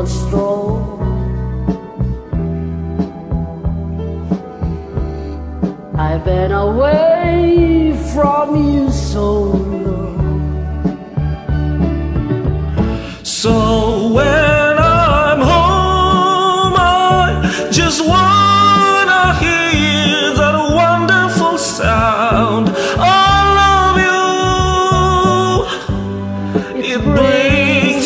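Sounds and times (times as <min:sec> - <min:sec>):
karaoke backing track: 0:00.0 - 0:28.0
man singing held notes: 0:26.8 - 0:28.0.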